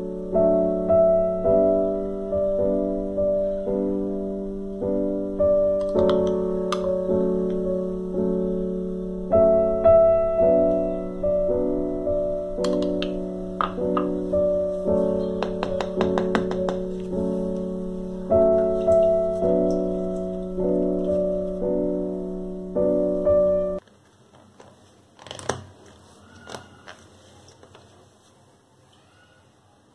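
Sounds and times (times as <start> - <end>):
piano music with held chords: 0.0 - 23.8.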